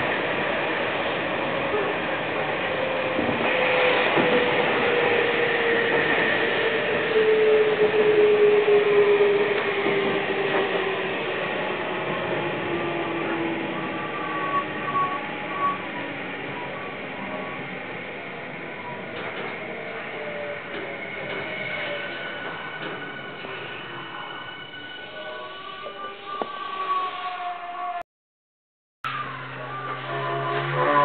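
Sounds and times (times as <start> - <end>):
train running over rails: 0.0 - 27.1, 29.1 - 31.0.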